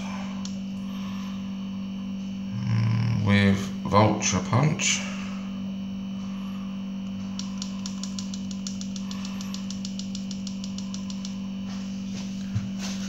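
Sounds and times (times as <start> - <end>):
low electrical hum: 0.0 - 13.0
rapid small clicks: 7.4 - 11.4.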